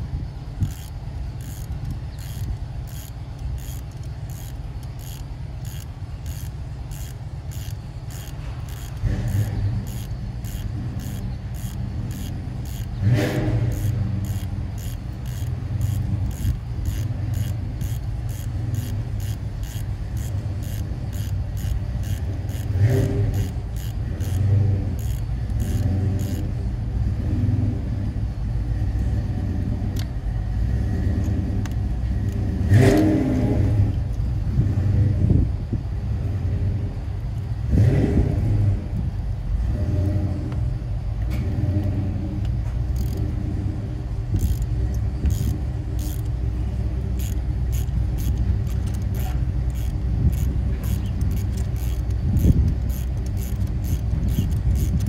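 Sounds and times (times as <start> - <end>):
hand ratchet clicking: 0.0 - 26.6, 42.9 - 43.3, 44.3 - 46.4, 47.0 - 55.0.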